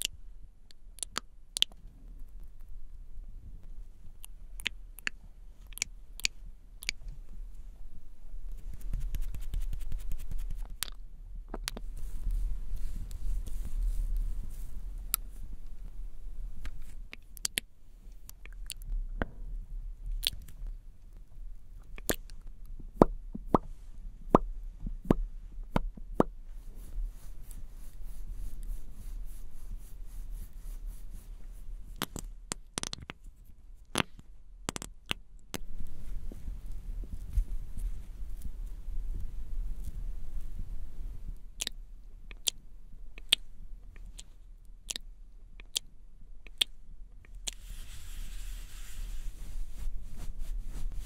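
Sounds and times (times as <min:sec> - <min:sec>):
wet sticky lip gloss sounds: 0:00.0 - 0:01.8, 0:04.1 - 0:07.0, 0:16.7 - 0:18.8, 0:21.8 - 0:22.4, 0:41.6 - 0:42.6, 0:43.2 - 0:47.7
low steady hum: 0:00.0 - 0:51.0.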